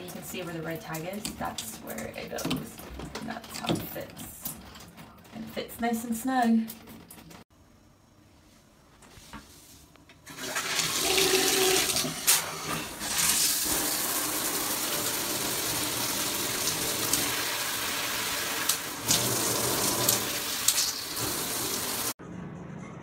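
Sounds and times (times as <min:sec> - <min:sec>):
shower spraying water on tiles: 0:10.3 - 0:22.2.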